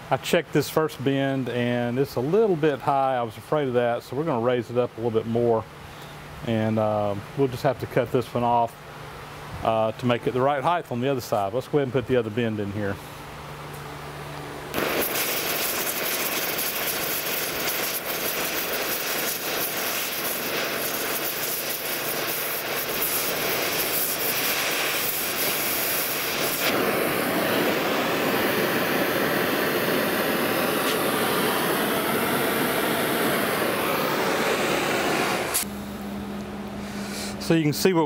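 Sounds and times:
gas torch flame hissing: 0:14.7 - 0:35.7.

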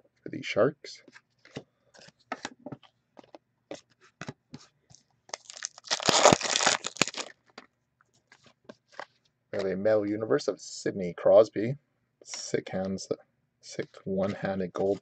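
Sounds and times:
foil pack tearing: 0:05.3 - 0:07.3.

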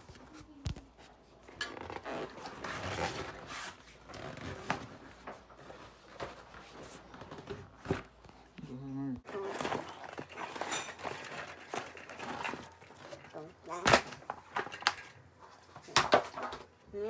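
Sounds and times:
rubber tire rubbing and scraping: 0:01.8 - 0:04.8.

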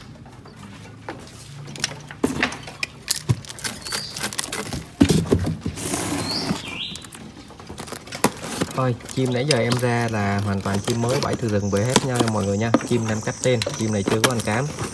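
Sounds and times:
birds fluttering in cages: 0:05.2 - 0:14.9
short high bird calls: 0:06.1 - 0:07.1.

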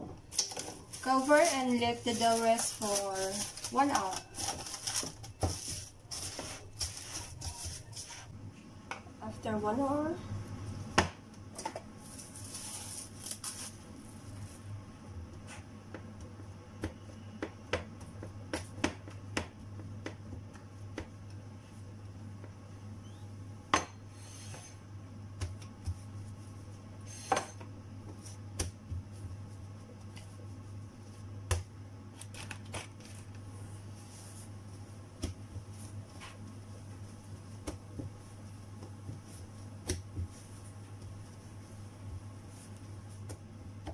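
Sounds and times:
steady low hum: 0:00.0 - 0:43.9
cling film crinkling: 0:00.4 - 0:07.9, 0:12.1 - 0:13.8, 0:32.1 - 0:33.4.

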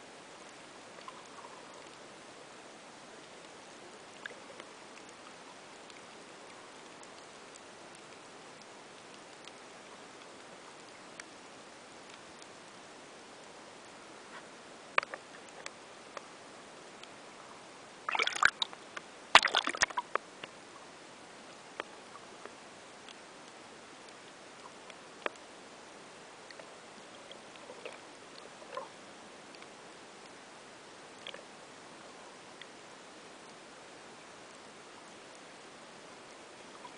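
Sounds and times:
sharp underwater clicks: 0:14.9 - 0:16.3, 0:18.1 - 0:20.6
water sloshing: 0:18.1 - 0:18.7, 0:19.3 - 0:20.2.

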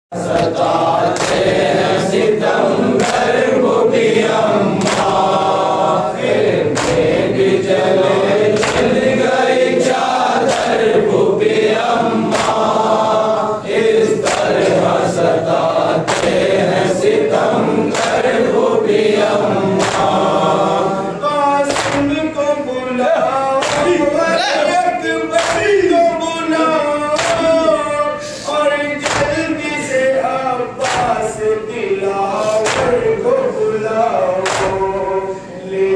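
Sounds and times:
men chanting: 0:00.1 - 0:35.9
chest slaps: 0:06.7 - 0:07.1, 0:08.6 - 0:09.0, 0:21.7 - 0:22.2, 0:29.0 - 0:29.4, 0:34.4 - 0:34.9
man leading chant: 0:16.7 - 0:35.9.

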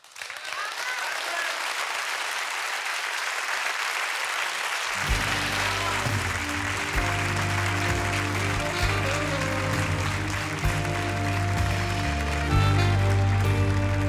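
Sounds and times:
audience applauding: 0:00.0 - 0:14.0
music with sustained low notes: 0:05.1 - 0:14.0.

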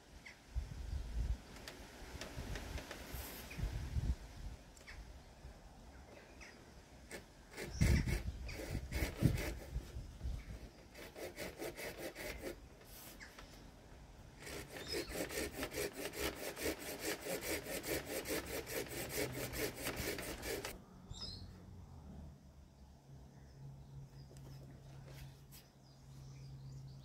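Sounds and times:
hand saw cutting wood: 0:07.1 - 0:13.3, 0:14.4 - 0:20.8
bird chirp: 0:21.0 - 0:21.6, 0:23.3 - 0:27.0.

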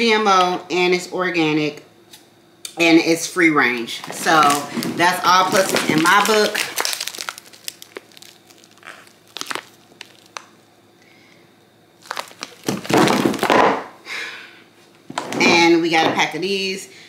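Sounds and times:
plastic packaging crinkling: 0:03.9 - 0:10.7, 0:12.0 - 0:13.8.

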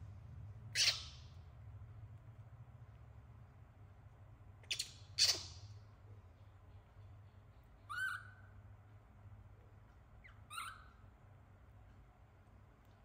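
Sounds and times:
baby monkey squeaking calls: 0:00.7 - 0:01.4, 0:04.6 - 0:05.7, 0:07.8 - 0:08.6, 0:10.2 - 0:11.1.

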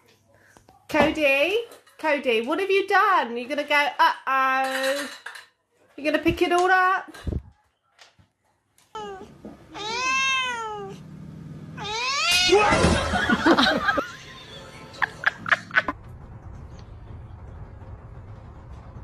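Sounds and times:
cats yowling: 0:09.0 - 0:11.0, 0:11.8 - 0:13.1.

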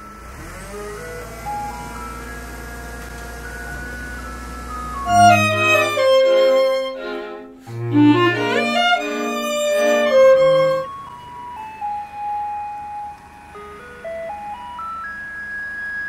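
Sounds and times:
low bass notes: 0:01.2 - 0:10.9
violin-led string music: 0:01.2 - 0:11.5.

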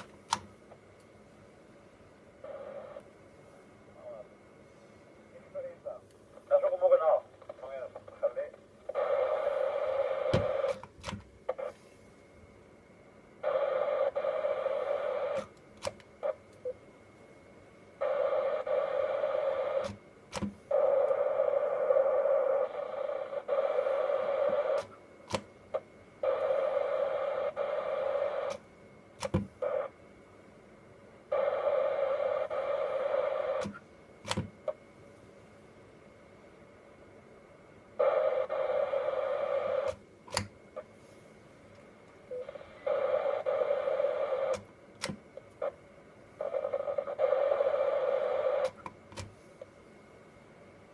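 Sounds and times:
radio receiver hiss: 0:00.0 - 0:01.4, 0:02.1 - 0:12.3, 0:13.3 - 0:35.4, 0:36.7 - 0:50.9
short sharp radio clicks: 0:19.7 - 0:21.2, 0:24.4 - 0:28.6, 0:32.3 - 0:34.8, 0:42.4 - 0:45.8, 0:46.4 - 0:49.4.

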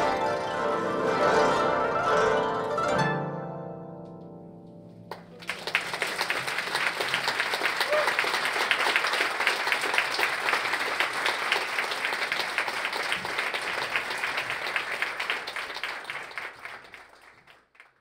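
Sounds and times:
audience applauding: 0:05.1 - 0:18.0.

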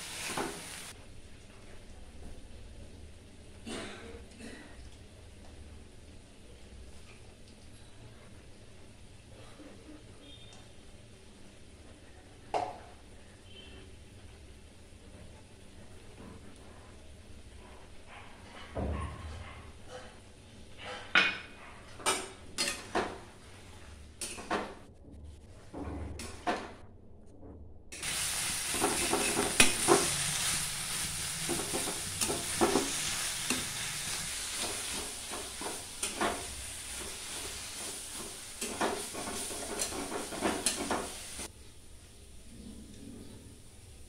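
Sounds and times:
frying sizzle: 0:00.0 - 0:03.6, 0:28.0 - 0:42.5
metal spatula scraping pan: 0:28.7 - 0:41.5.

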